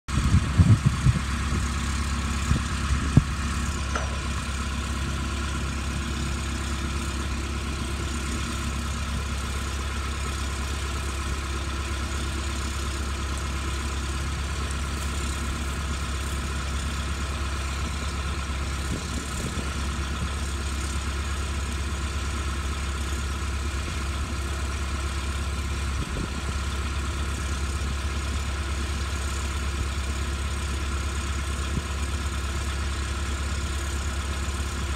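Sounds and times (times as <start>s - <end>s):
heavy engine idling: 0.1s - 34.9s
sharp knocks: 3.9s - 4.6s.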